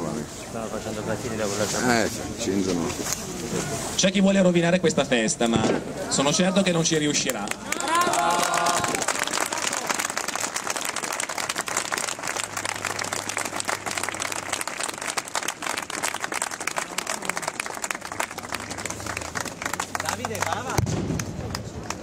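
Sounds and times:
crowd clapping: 7.1s - 22.0s.

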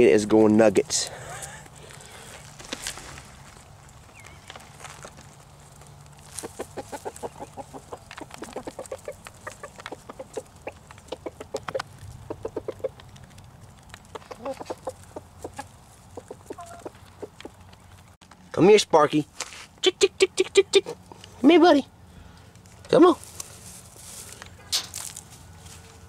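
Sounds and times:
chickens clucking: 3.5s - 18.2s, 19.9s - 21.4s.

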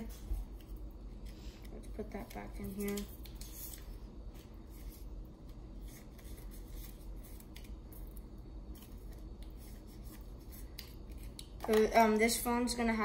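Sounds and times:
paper and card rustling: 0.0s - 12.4s.

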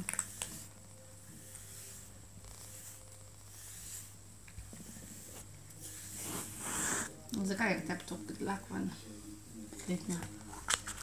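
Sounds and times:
brush swishing through fur: 0.0s - 7.1s.

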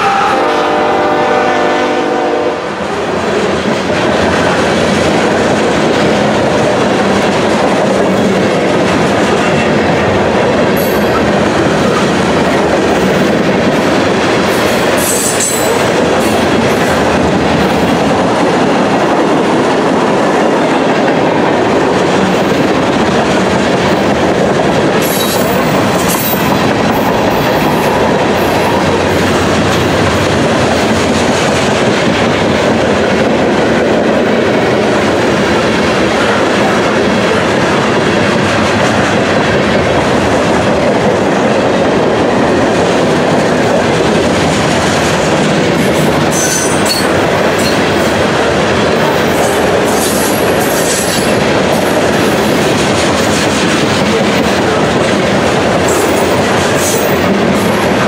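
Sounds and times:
train wheels clattering on rails: 1.1s - 58.0s.

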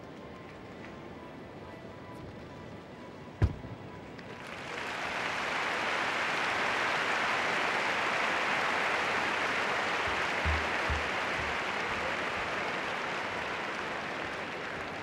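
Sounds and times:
crowd applauding: 4.2s - 15.0s.

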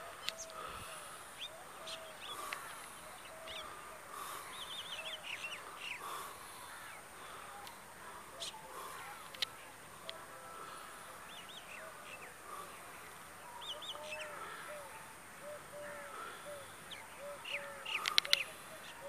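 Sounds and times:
birds chirping: 0.0s - 19.0s
lower repeated bird calls: 0.0s - 19.0s
sharp clicks: 18.0s - 18.5s.

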